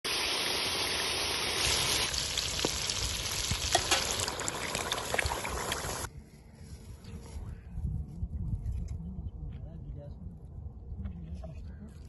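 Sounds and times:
chicken sizzling in hot oil: 0.0s - 6.1s
liquid pouring: 0.1s - 6.1s
curry bubbling and popping: 2.0s - 6.1s.

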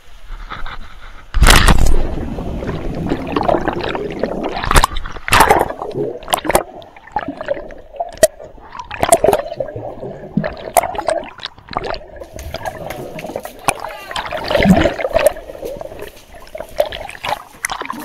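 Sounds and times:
water splashing and lapping: 0.0s - 18.0s
underwater gurgling: 1.4s - 18.0s.

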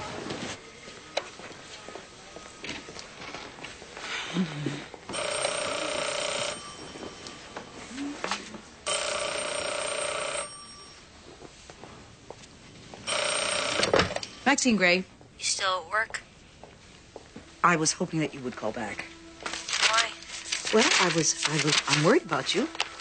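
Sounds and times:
desk telephone ringing: 5.1s - 7.7s, 8.8s - 11.1s, 13.1s - 14.4s.

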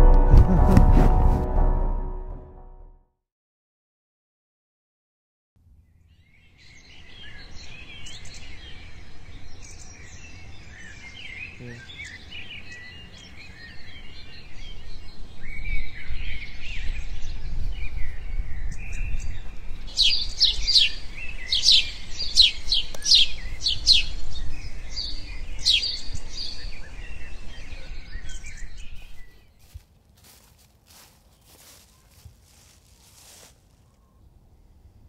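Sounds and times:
downward-sweeping bird notes: 0.0s - 2.8s
low rumble: 0.0s - 2.8s
birds chirping: 6.8s - 16.6s
faint rustles: 29.6s - 34.0s.

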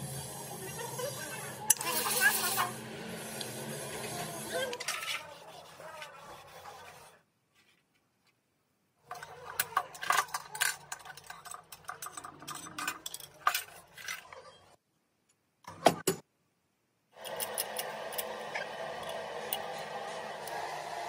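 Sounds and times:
metal parts clinking and scraping: 9.1s - 14.7s.

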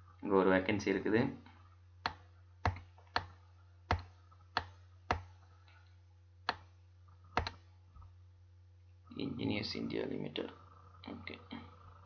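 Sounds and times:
faint low electrical hum: 0.0s - 12.0s
computer mouse clicks: 2.0s - 7.7s.

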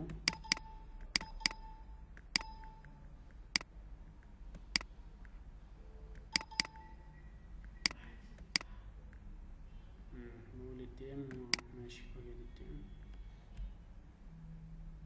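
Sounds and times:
mouse button clicks: 0.2s - 1.7s, 6.2s - 6.9s.

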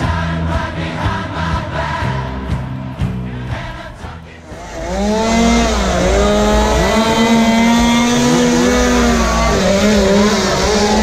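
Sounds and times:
low rumble: 2.2s - 11.0s
crowd shouting and yelling: 3.4s - 11.0s.

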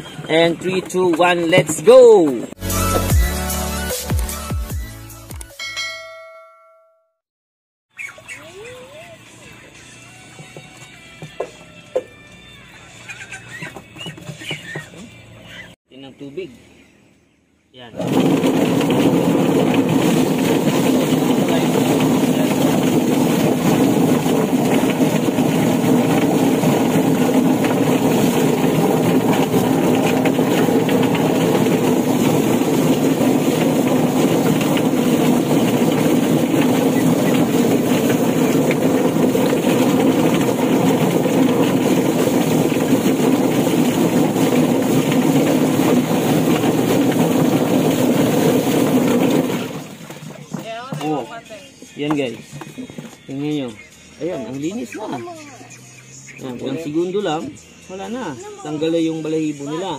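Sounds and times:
chicken plucker motor humming: 8.0s - 15.8s, 17.9s - 50.6s
water splashing: 18.0s - 51.1s.

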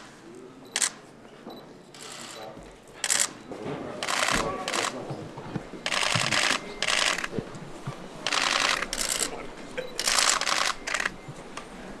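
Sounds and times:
camera shutter bursts: 0.8s - 1.0s, 3.0s - 3.4s, 4.0s - 5.0s, 5.8s - 7.3s, 8.2s - 9.4s, 10.0s - 11.2s.

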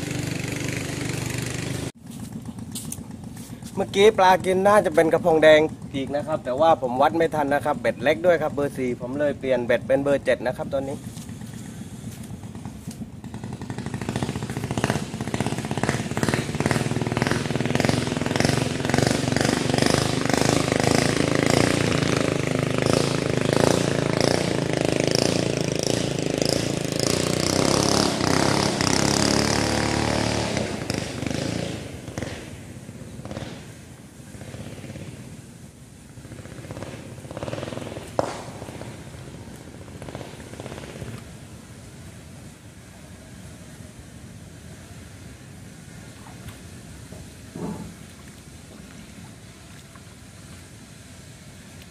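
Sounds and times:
motor engine pulsing: 0.0s - 42.1s, 47.0s - 49.6s.

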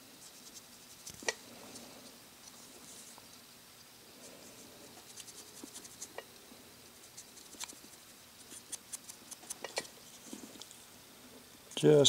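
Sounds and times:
brush scratching on plastic: 0.2s - 3.4s, 4.4s - 6.2s, 6.9s - 10.4s.

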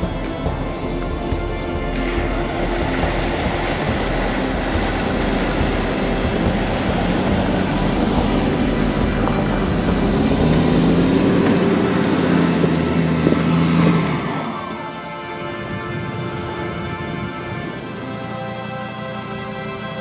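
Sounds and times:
car engine running: 0.0s - 15.0s
water splashing around wheels: 0.0s - 20.0s.

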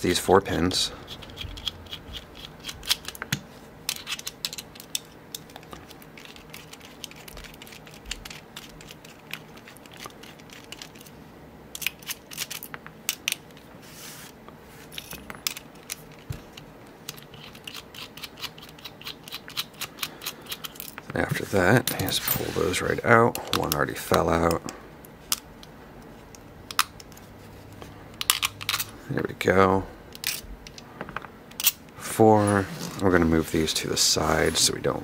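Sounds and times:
screwdriver clicking and scraping metal: 1.1s - 3.2s, 3.9s - 11.1s.

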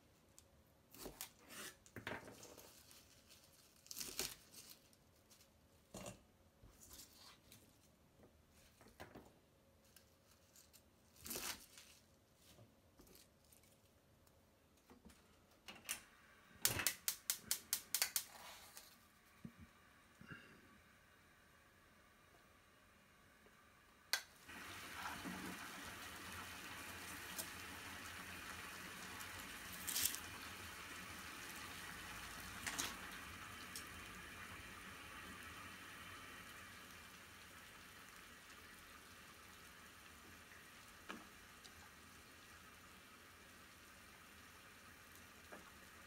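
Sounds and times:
water boiling in saucepan: 20.8s - 46.0s.

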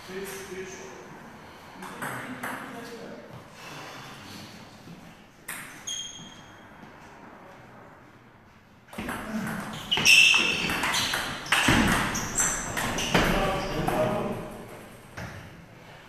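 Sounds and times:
table tennis ball hits: 9.0s - 14.3s.

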